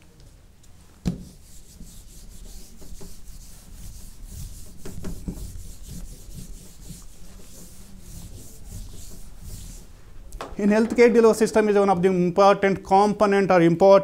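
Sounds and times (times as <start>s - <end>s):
eraser wiping a whiteboard: 1.1s - 10.2s.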